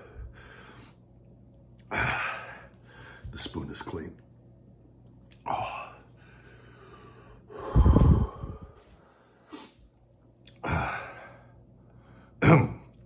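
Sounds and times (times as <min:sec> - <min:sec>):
man gasping and breathing hard: 0:01.9 - 0:03.3, 0:05.5 - 0:09.8, 0:10.6 - 0:11.5.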